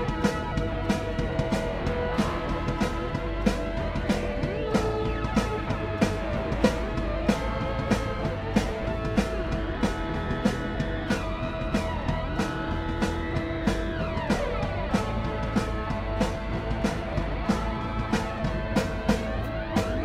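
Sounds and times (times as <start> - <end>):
guitar music: 0.0 - 20.0
steady drum beat: 0.0 - 20.0.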